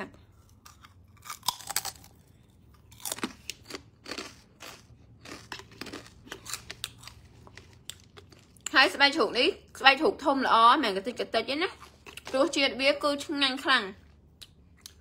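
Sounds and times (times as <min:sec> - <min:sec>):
crunching and chewing snack: 0:00.2 - 0:08.8, 0:11.8 - 0:12.4.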